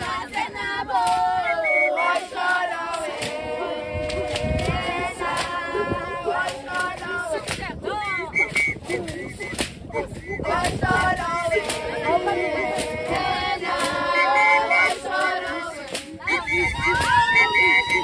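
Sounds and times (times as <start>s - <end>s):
women singing together: 0.0s - 18.0s
sharp percussive beats: 8.4s - 18.0s.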